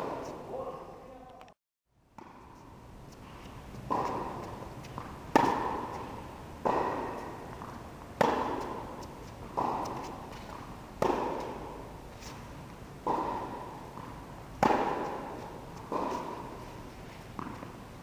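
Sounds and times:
tennis ball hit by racket: 2.2 - 2.5, 3.7 - 11.9, 13.0 - 16.7, 17.4 - 17.8.

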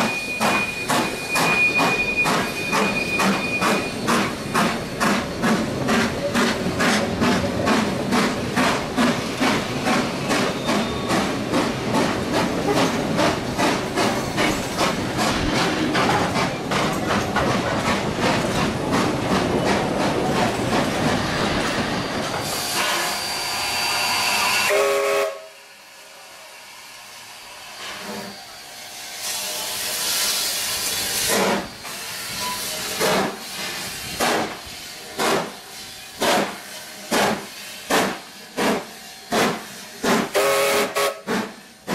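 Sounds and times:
steam locomotive exhaust beats: 0.0 - 28.6, 29.2 - 41.9
train passing at speed: 0.0 - 41.9
steam hissing: 21.0 - 41.9.

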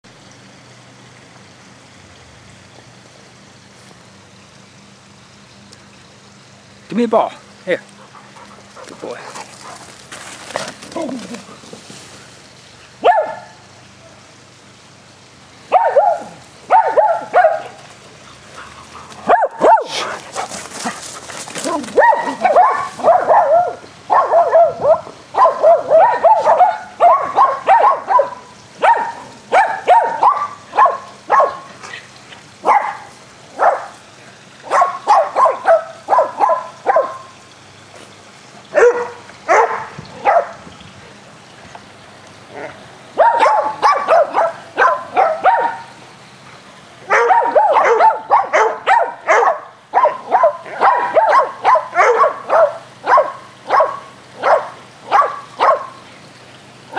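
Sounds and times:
dogs barking excitedly: 7.8 - 11.7, 12.8 - 14.3, 15.6 - 37.4, 38.6 - 40.7, 42.5 - 56.1.

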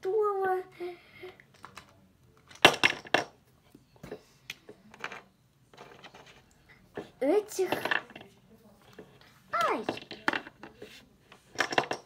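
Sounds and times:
plastic toys clacking together: 1.5 - 3.4, 7.6 - 9.0, 9.6 - 12.0.

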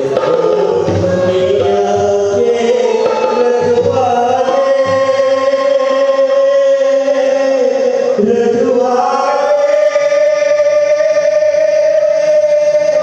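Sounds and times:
tabla drumming: 0.0 - 7.4
person singing: 0.0 - 13.0.

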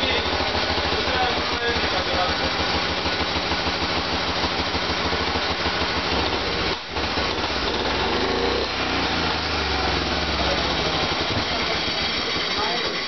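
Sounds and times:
small engine putter revving: 4.3 - 13.0.

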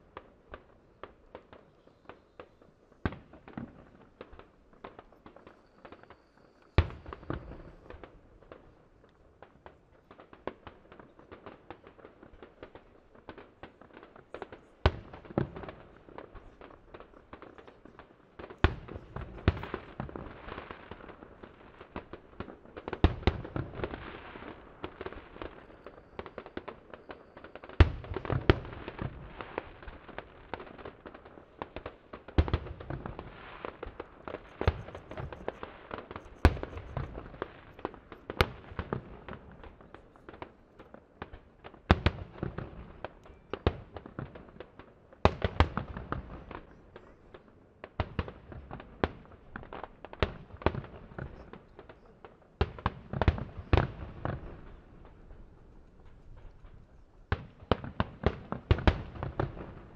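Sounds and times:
firework crackle and rumble: 0.0 - 59.9
firework shells bursting: 31.7 - 40.6.

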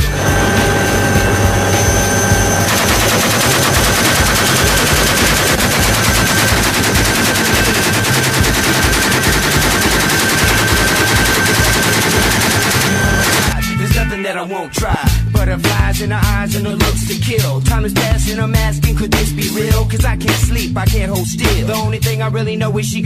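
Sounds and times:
helicopter rotor beat: 0.0 - 13.6
machine gun burst: 0.0 - 13.6.

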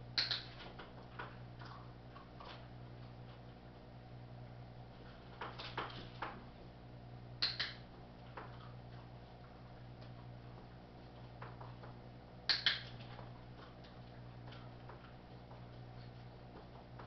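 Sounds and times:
steady low hum: 0.0 - 17.0
faint clicks and taps: 7.4 - 17.0.

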